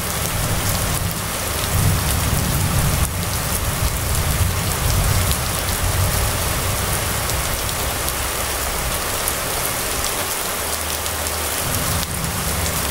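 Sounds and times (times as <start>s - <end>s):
steady rain on road and roofs: 0.0s - 12.9s
low rumble: 11.4s - 12.9s.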